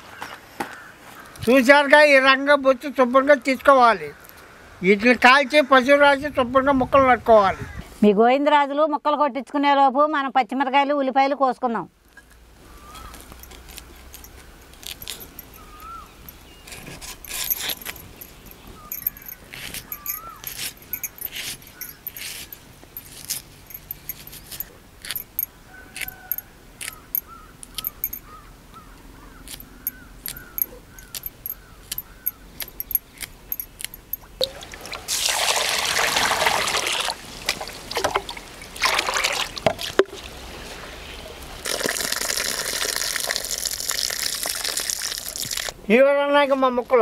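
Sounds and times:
water sloshing in a pot: 0:34.2 - 0:40.5.

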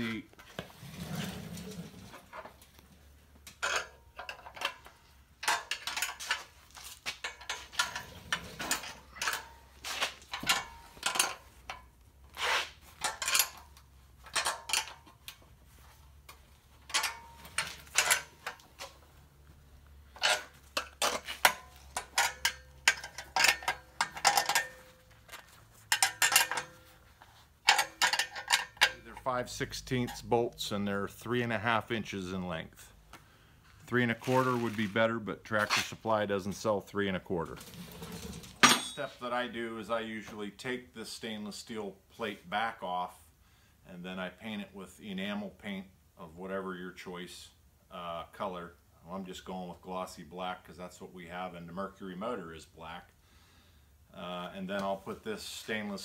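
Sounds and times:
wrench clicking on metal bolts: 0:14.3 - 0:15.0, 0:16.9 - 0:18.6, 0:20.2 - 0:24.9, 0:25.9 - 0:26.8, 0:27.6 - 0:29.2.

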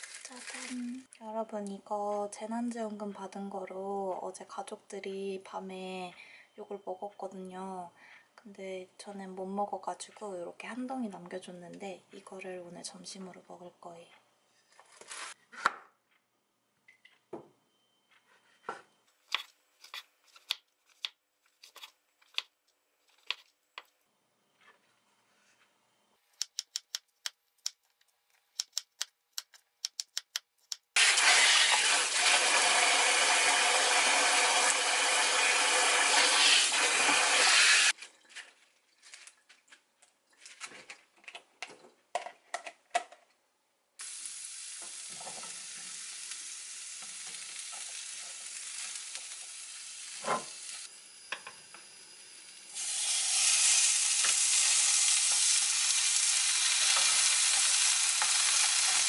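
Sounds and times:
lettuce rustling in colander: 0:00.0 - 0:01.0, 0:38.0 - 0:41.0
steak sizzling in frying pan: 0:31.0 - 0:37.9, 0:44.0 - 0:59.0.

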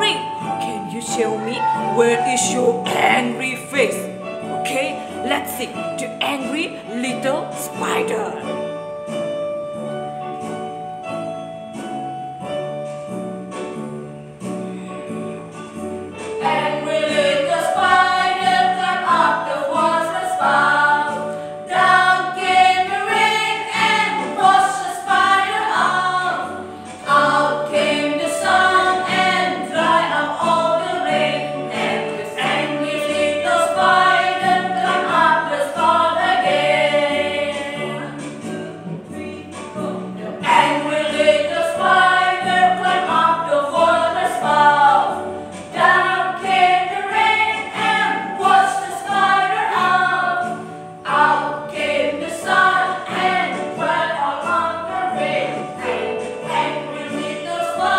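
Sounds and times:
keyboard accompaniment: 0:00.0 - 0:57.9
women singing together: 0:16.4 - 0:57.9.

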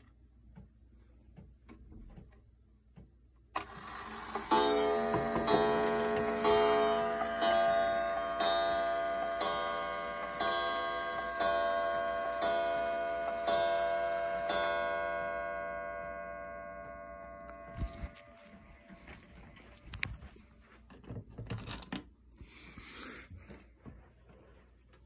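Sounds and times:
clock striking on wire gong: 0:04.2 - 0:18.4.

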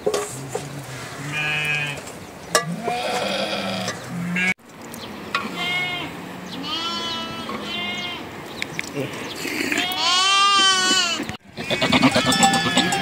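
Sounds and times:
sheep bleating: 0:01.2 - 0:02.0, 0:02.7 - 0:04.6, 0:05.4 - 0:08.3, 0:09.6 - 0:13.0.

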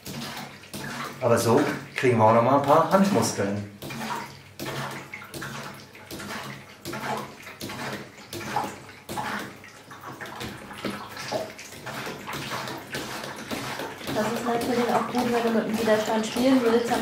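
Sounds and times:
water splashing into tank: 0:00.0 - 0:17.0.

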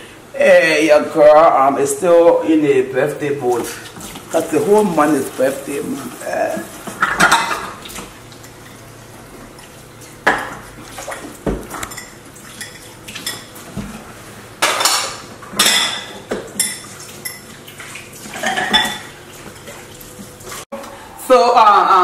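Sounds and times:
dishes and cutlery clinking: 0:06.9 - 0:07.8, 0:10.3 - 0:13.6, 0:14.6 - 0:19.8.

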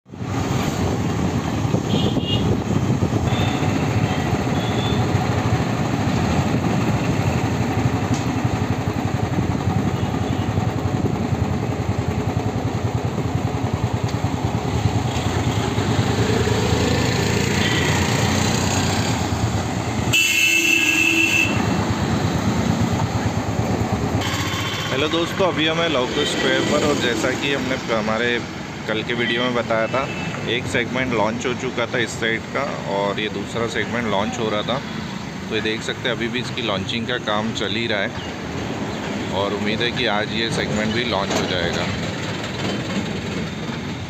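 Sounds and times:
road traffic: 0:00.0 - 0:44.0
steady high tone: 0:24.2 - 0:28.2.

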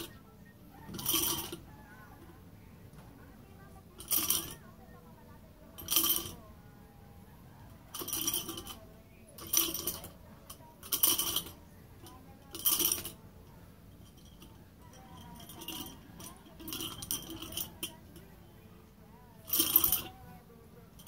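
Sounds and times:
metal nunchaku chain jangling: 0:14.0 - 0:18.0, 0:19.5 - 0:20.1.

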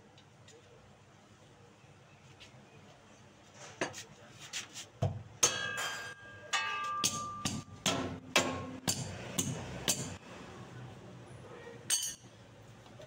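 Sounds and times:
metal tools knocking on exhaust pipe: 0:05.4 - 0:10.2.

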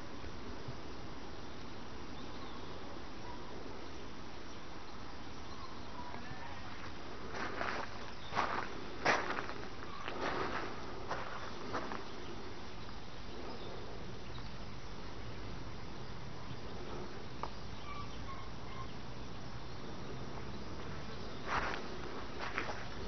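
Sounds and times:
outdoor background noise: 0:00.0 - 0:23.0.

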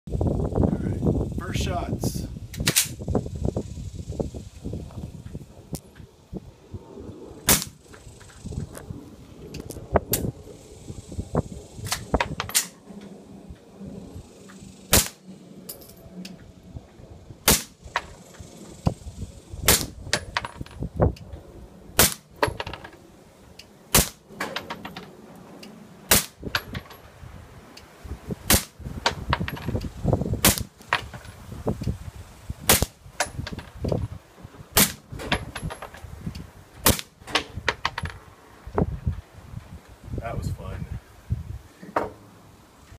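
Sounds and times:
suppressed pistol shots: 0:07.5 - 0:07.8, 0:14.9 - 0:15.2, 0:17.5 - 0:17.8, 0:22.0 - 0:22.3, 0:23.9 - 0:24.2, 0:26.1 - 0:26.4, 0:28.5 - 0:28.8, 0:34.8 - 0:35.0.

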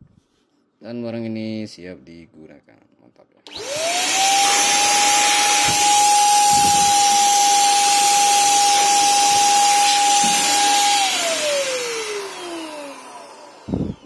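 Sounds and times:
paint spray gun motor whining: 0:03.5 - 0:14.0.

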